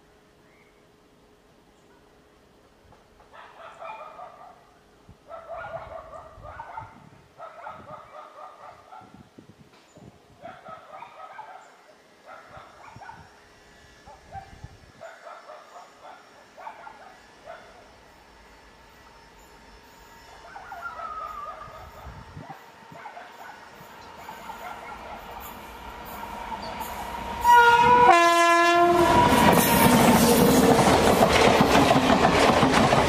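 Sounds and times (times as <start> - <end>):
dog barking: 3.3 - 4.7, 5.3 - 9.2, 10.4 - 13.3, 14.1 - 17.9, 20.4 - 23.7, 24.3 - 25.4.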